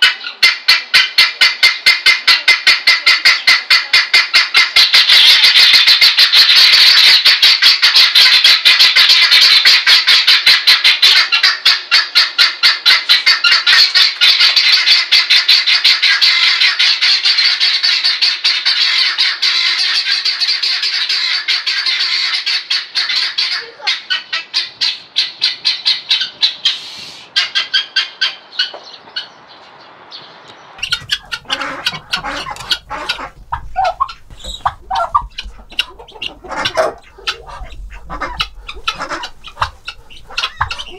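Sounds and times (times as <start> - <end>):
guinea fowl rattling chatter: 0.0 - 29.3, 30.8 - 40.9.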